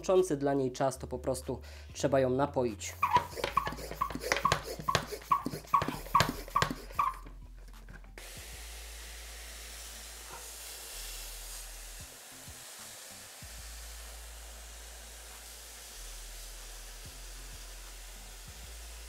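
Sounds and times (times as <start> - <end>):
hiss of mist spraying: 3.0 - 7.2, 8.2 - 19.0
sprayer pump strokes: 3.0 - 7.3.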